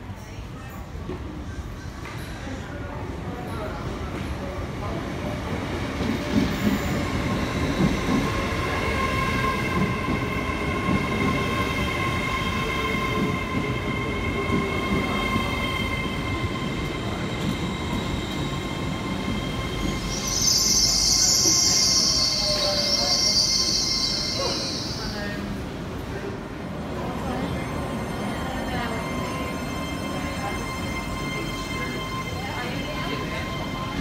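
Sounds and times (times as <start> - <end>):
train wheels rumbling and clattering: 3.4 - 34.0
high-pitched train whine: 6.6 - 25.6, 27.2 - 34.0.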